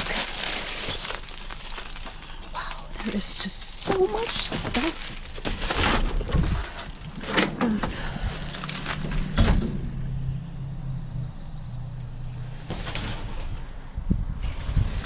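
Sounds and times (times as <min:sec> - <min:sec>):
cardboard and plastic clattering: 0:00.0 - 0:09.6, 0:12.7 - 0:13.6
low motor hum: 0:06.2 - 0:15.0.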